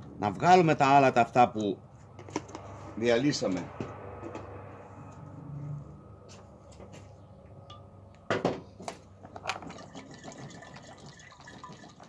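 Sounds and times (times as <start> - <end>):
water sloshing in metal boiler: 9.3 - 12.0.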